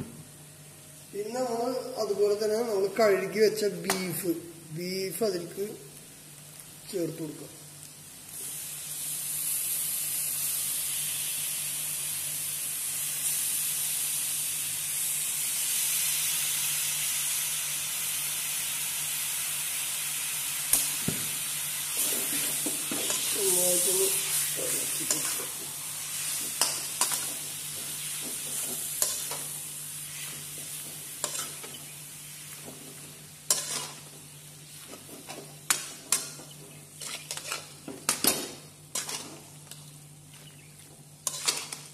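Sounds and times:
meat sizzling in a pan: 5.8s - 41.9s
steel spatula scraping a pan: 30.0s - 32.5s, 33.5s - 34.0s, 37.0s - 38.2s, 38.9s - 39.4s, 41.2s - 41.9s.

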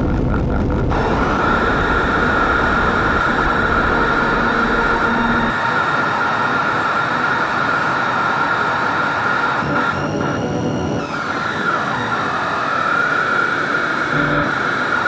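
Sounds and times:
deep low rumble: 0.0s - 5.5s
machine-like noise wash: 0.0s - 15.0s
high synth drone: 0.4s - 15.0s.

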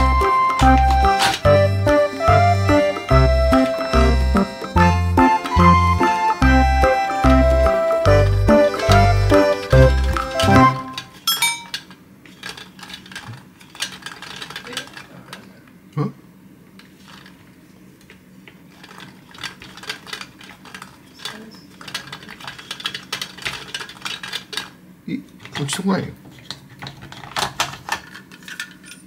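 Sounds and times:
treats clattering in plastic drum: 18.7s - 24.7s, 25.4s - 28.8s.

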